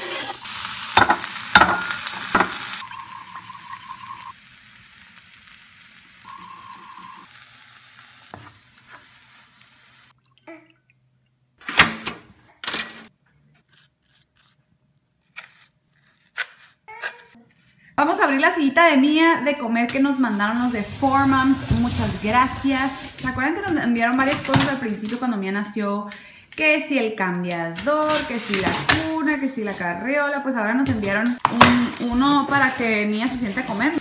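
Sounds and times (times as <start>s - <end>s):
vegetables sizzling in hot oil: 0.0s - 10.2s, 31.8s - 34.0s
knife crunching through toast: 13.6s - 14.6s.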